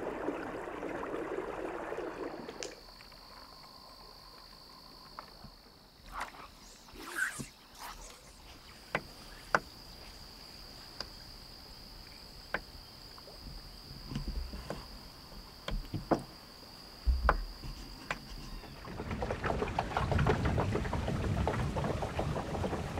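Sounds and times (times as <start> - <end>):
high-pitched insect trill: 2.3 - 18.9.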